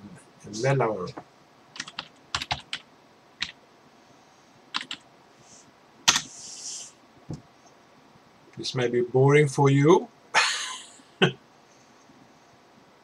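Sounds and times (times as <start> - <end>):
computer keyboard key presses: 4.8 - 5.0.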